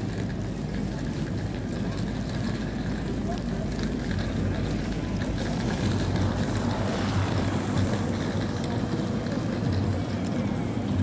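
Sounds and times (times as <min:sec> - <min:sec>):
busy city square noise: 0:00.0 - 0:11.0
wind rumbling on microphone: 0:00.0 - 0:11.0.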